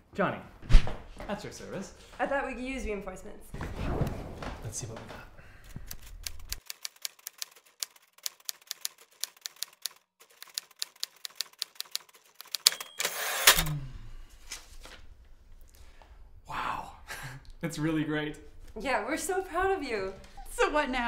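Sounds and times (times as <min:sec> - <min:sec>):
quick loud swish: 0:00.7 - 0:01.0.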